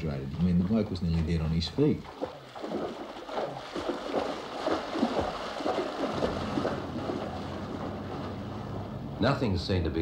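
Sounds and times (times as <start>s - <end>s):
feet splashing in muddy water: 0.4s - 9.0s
low steady rumble: 4.4s - 10.0s.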